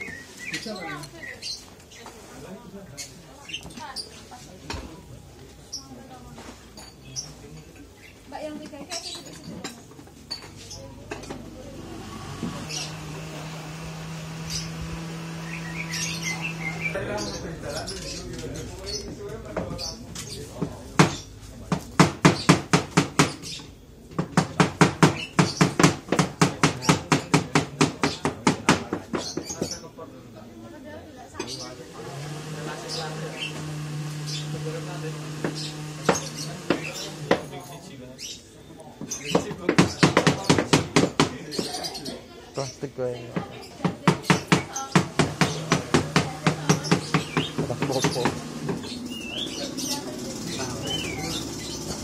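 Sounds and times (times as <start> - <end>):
knife chopping on wooden board: 43.4 - 48.8.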